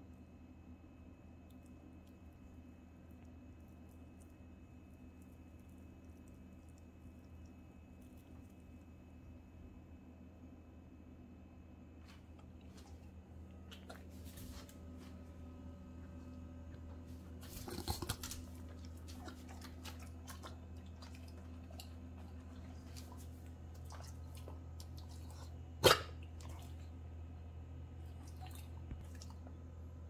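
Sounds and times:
puppy licking and snuffling: 12.0 - 27.0.

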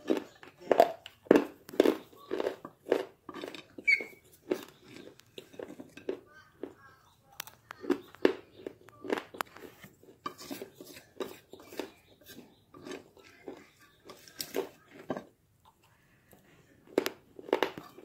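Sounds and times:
crunching and chewing: 0.0 - 18.0
plastic fork scraping glass plate: 3.3 - 6.1, 9.1 - 15.3.

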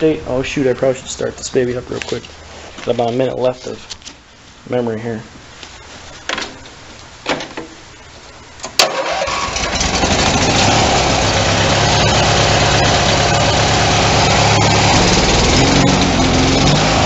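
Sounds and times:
tractor engine starting and running: 8.6 - 17.0.

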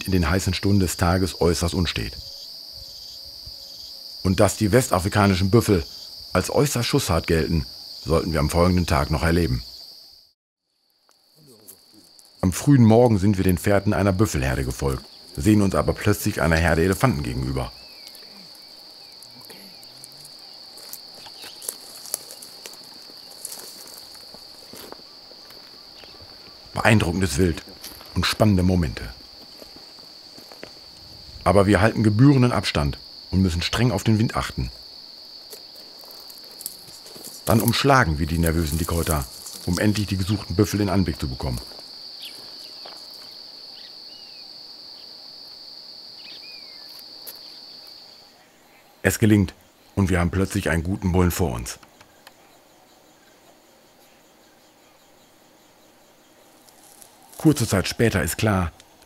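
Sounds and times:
insects droning: 0.0 - 59.0
footsteps in dry grass: 17.8 - 26.8, 27.6 - 28.3, 29.1 - 31.3, 34.9 - 40.6, 41.2 - 43.4, 56.5 - 57.6.

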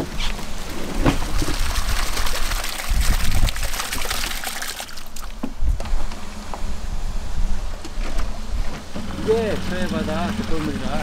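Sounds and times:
water splashing and trickling: 0.0 - 5.5, 9.1 - 11.0.

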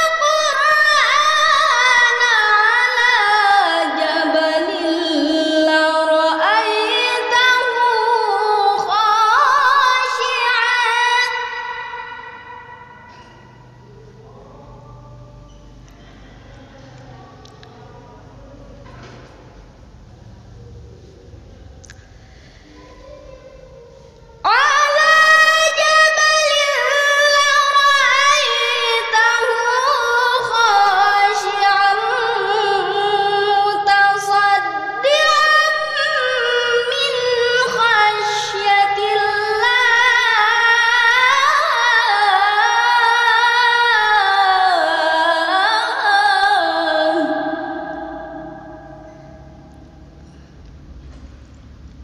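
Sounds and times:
girl reciting melodically: 0.0 - 15.4, 22.4 - 49.7.

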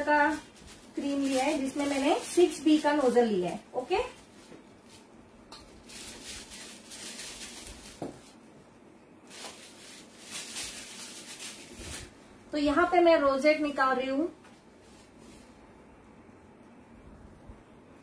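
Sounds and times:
plastic piping bags rustling: 0.0 - 8.4, 9.2 - 12.4.

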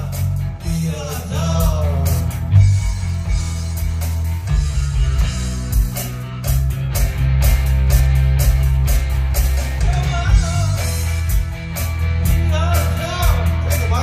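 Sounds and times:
man singing: 0.0 - 2.6, 9.8 - 11.0, 12.4 - 14.0
live rock band playing: 0.0 - 14.0.

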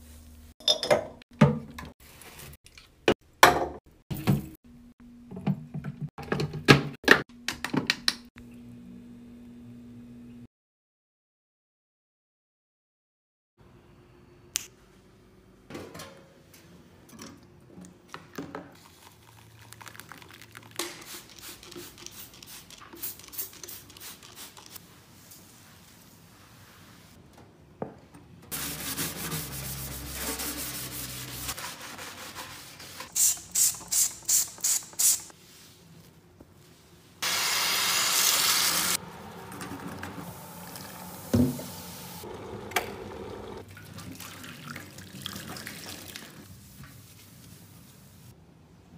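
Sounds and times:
spray bottle squirts: 33.1 - 35.3.

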